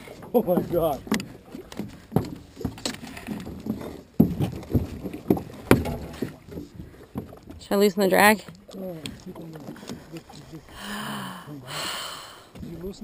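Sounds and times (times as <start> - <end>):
knocks in an aluminum boat: 0.3 - 10.1, 12.6 - 13.0.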